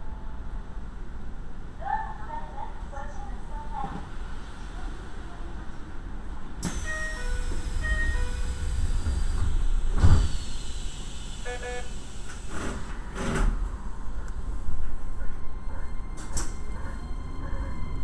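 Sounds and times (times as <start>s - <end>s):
low rumble in train cab: 0.0s - 18.0s
electronic beeps: 11.5s - 11.9s.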